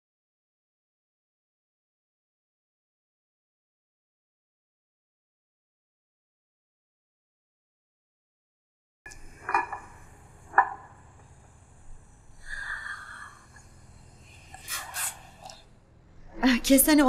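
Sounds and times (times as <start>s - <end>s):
sipping tea: 14.3s - 15.7s.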